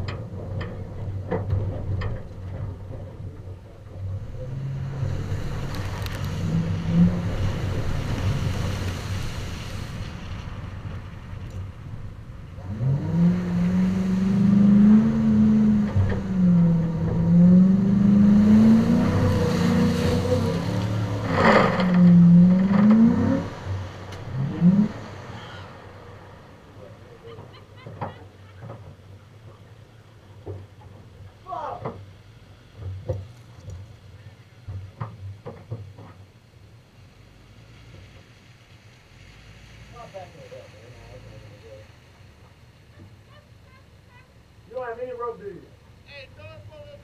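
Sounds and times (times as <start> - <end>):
vehicle engine revving: 3.8 - 30.9
tyres hissing on wet dirt: 4.9 - 11.4, 17.8 - 27.2.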